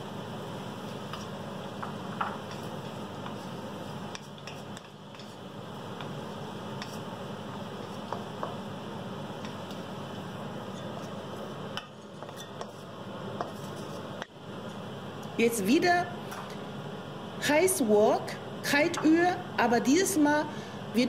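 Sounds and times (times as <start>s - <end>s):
food sizzling in a wok: 0.0s - 11.8s.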